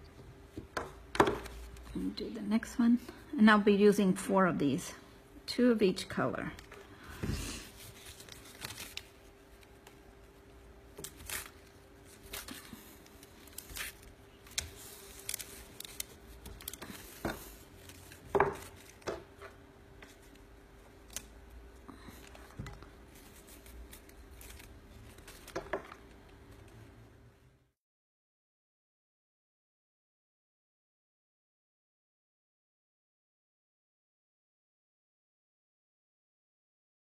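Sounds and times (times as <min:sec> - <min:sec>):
faint steady hum: 0:00.0 - 0:27.7
cardstock rustling and snapping: 0:07.8 - 0:10.0, 0:10.9 - 0:20.4.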